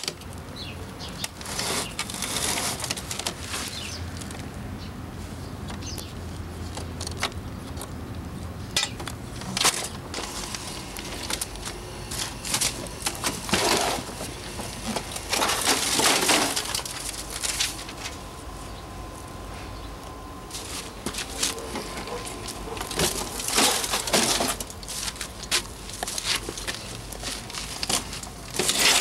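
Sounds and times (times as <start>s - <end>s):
crunching scrapes on gravel: 1.3s - 4.4s, 9.4s - 18.2s, 20.5s - 29.0s.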